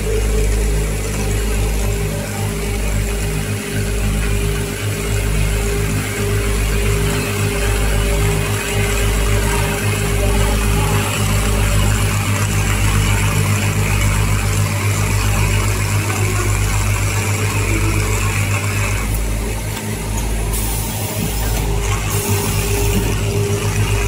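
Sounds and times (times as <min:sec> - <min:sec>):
machine running with low hum: 0:00.0 - 0:24.0.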